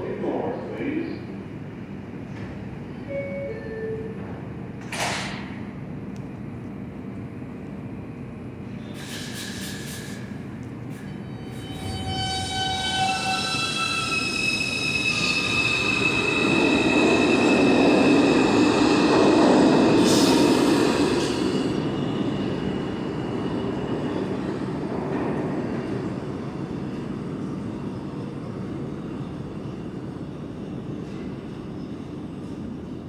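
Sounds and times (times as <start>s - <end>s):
subway train rumble: 0.0s - 33.0s
wheel squeal: 10.9s - 18.6s.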